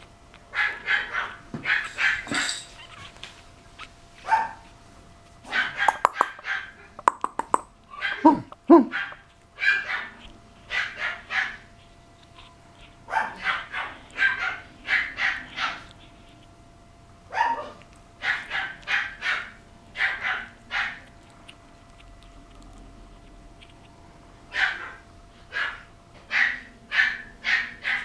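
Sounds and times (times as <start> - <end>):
puppy yipping and barking: 0.5 - 3.2, 3.8 - 4.7, 5.5 - 6.8, 7.9 - 16.4, 17.3 - 21.6, 24.5 - 28.0.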